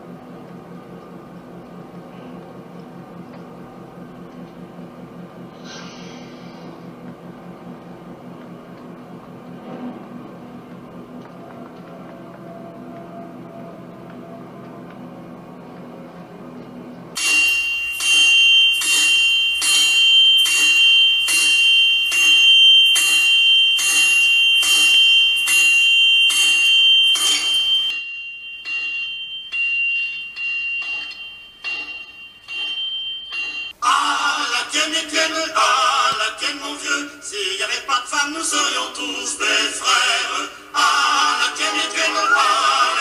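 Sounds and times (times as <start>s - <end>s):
hammer striking anvil: 17.2s - 33.8s
people singing: 33.8s - 43.0s.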